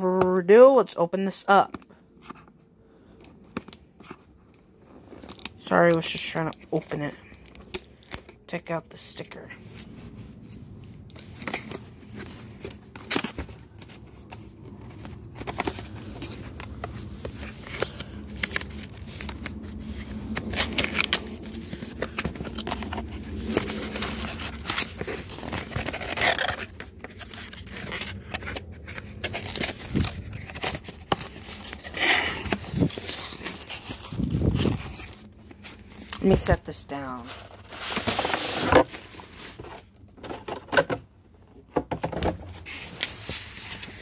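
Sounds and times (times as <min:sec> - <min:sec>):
cardboard scraping and rustling: 0:11.2 - 0:40.9, 0:42.0 - 0:44.0
tape peeling and tearing: 0:14.2 - 0:35.3.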